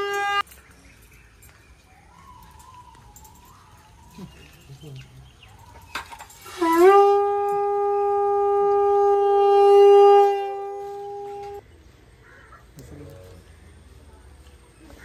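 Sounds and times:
conch shell blown: 0.0s - 0.4s, 6.4s - 11.6s.

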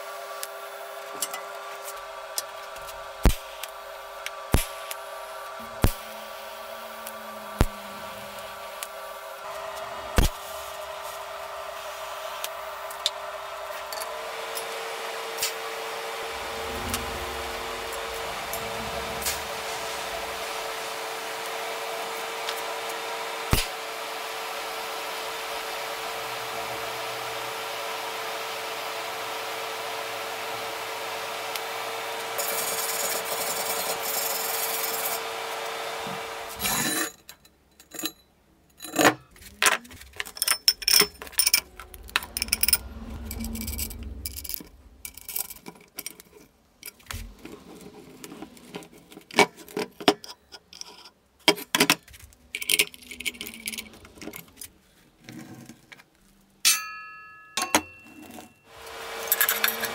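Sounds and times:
welding arc hissing and humming: 0.0s - 36.8s
steel parts clinking and scraping: 36.6s - 51.2s, 52.6s - 54.8s, 59.2s - 59.9s
wrench turning nuts: 40.2s - 41.7s.

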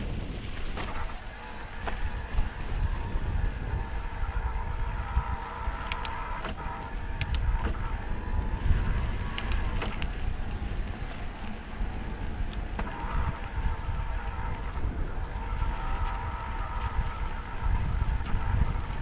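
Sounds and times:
bicycle clicks and rattles: 0.0s - 2.4s, 9.2s - 11.6s
tyres on dirt trail: 0.0s - 19.0s
wind on microphone: 0.0s - 19.0s.

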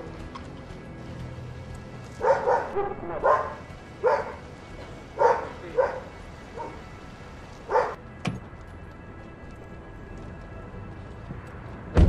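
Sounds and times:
dog barking: 2.2s - 4.5s, 5.1s - 6.8s, 7.7s - 8.0s.

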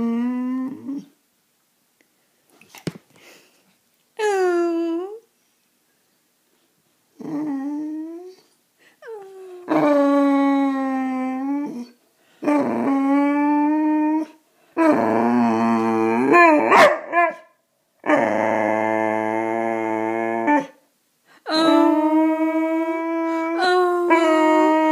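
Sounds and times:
dog howling and whining: 0.0s - 1.2s, 9.0s - 20.8s, 21.5s - 24.9s.

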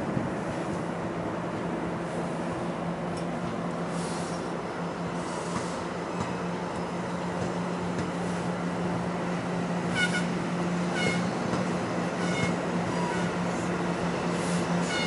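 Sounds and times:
train coaches rumbling past: 0.0s - 15.0s
high-pitched wheel squeals: 10.9s - 11.4s, 12.2s - 13.4s.

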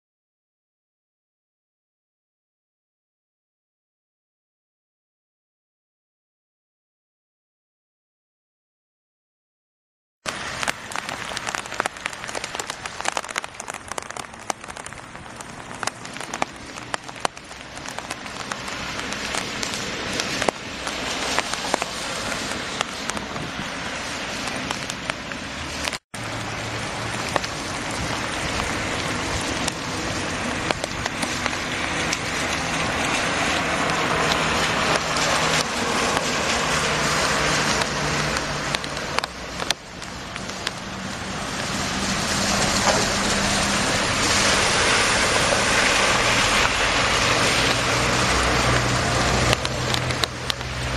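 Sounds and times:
heavy rain on flooded street: 10.3s - 50.9s.

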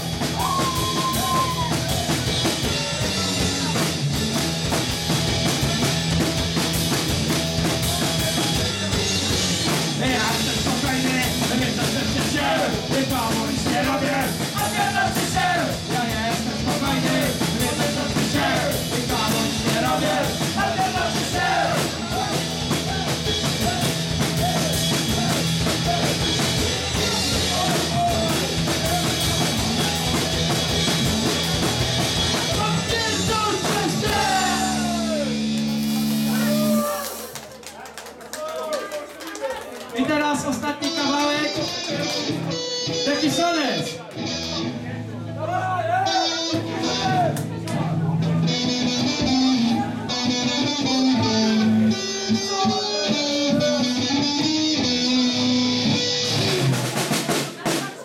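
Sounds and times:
drum kit beat: 0.0s - 37.6s, 48.4s - 58.0s
punk rock band playing: 0.0s - 37.7s, 40.1s - 58.0s
person singing: 10.0s - 26.2s, 32.7s - 35.4s.

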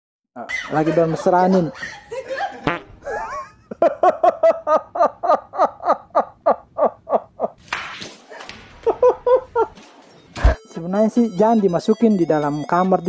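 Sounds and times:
man laughing hard: 0.4s - 7.6s, 8.8s - 9.8s.

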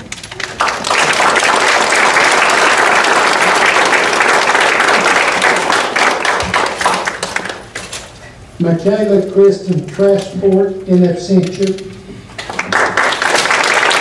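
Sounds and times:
audience applauding: 0.0s - 7.8s, 12.4s - 14.0s.

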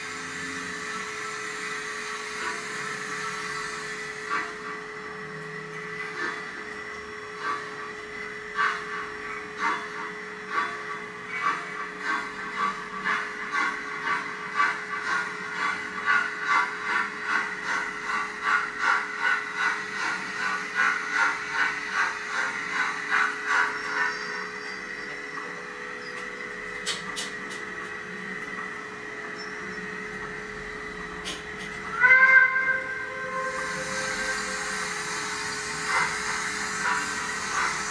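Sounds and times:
model steam locomotive chuffing: 0.0s - 37.9s
steady hum: 19.5s - 37.9s
locomotive whistle blast: 31.8s - 36.0s.

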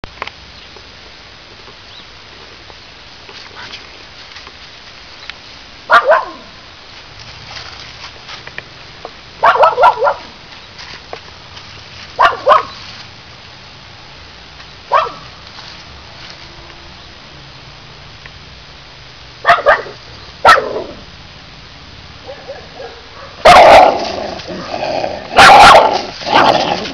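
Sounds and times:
puppy barking: 5.9s - 6.5s, 9.4s - 10.3s, 12.2s - 12.8s, 14.9s - 15.3s, 19.4s - 21.0s, 22.3s - 26.9s.

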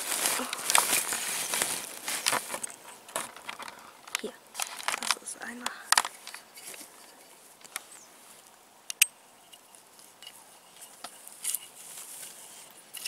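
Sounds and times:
rustling in undergrowth: 0.0s - 13.0s
sharp clicks: 8.9s - 9.1s.

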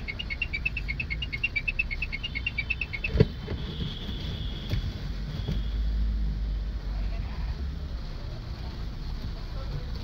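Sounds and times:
rapid high-pitched chirping: 0.0s - 3.3s
engine and tyre rumble: 0.0s - 10.0s.

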